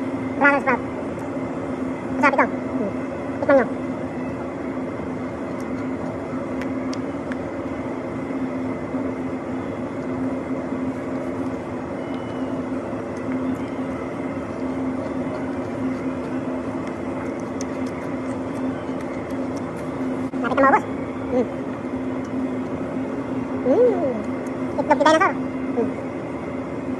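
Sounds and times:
faint high whine: 0.0 - 26.9
machinery low hum: 0.0 - 26.9
crunches of biting pepper: 13.0 - 20.6.

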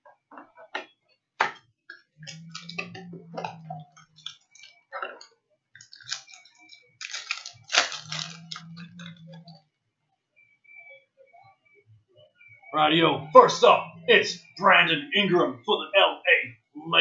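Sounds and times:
low hum: 2.2 - 4.8, 7.0 - 10.0, 11.9 - 15.7
cardboard and plastic wrapping tearing: 5.8 - 8.7.

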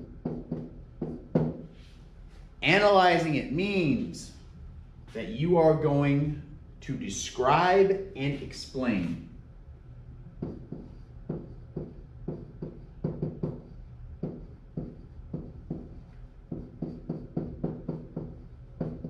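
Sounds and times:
pen tapping and scraping on whiteboard: 0.0 - 1.7, 10.4 - 19.0
steady low hum: 0.0 - 19.0.

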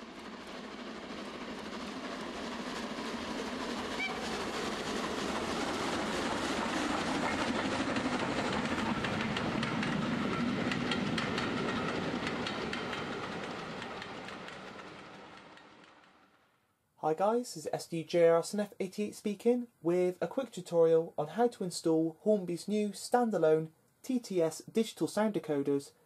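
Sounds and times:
model train wheels clicking: 2.9 - 16.3.

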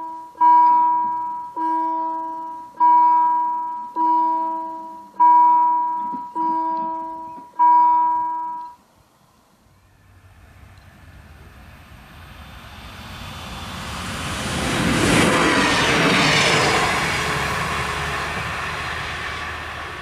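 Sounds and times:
level crossing warning bell: 0.0 - 8.8
approaching train: 0.0 - 20.0.

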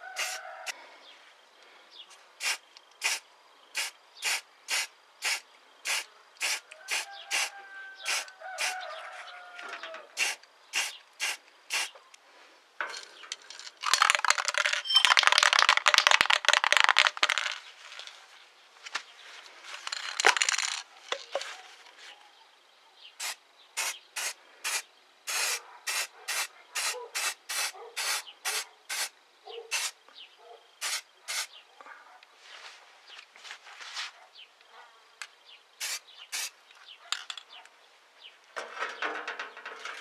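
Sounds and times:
spray paint can hissing: 0.2 - 0.4, 2.4 - 3.2, 3.8 - 8.8, 10.2 - 12.0, 23.2 - 29.1, 29.7 - 30.0, 30.8 - 31.5, 35.8 - 36.5.

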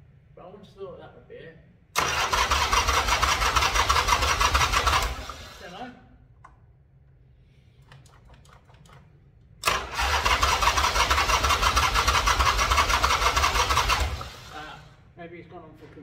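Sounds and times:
electric starter cranking engine: 2.0 - 5.8, 9.6 - 15.0.

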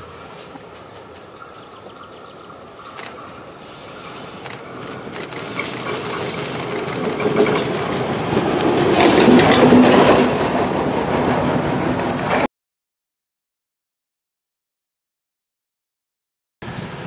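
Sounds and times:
diesel engine humming: 0.0 - 9.8
train wheels clicking on rails: 0.0 - 12.5.

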